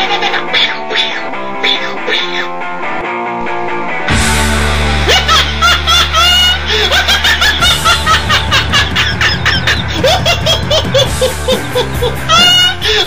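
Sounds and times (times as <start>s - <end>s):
loud laughter: 0.0s - 1.0s, 5.0s - 13.0s
music with deep bass beat: 7.6s - 13.0s.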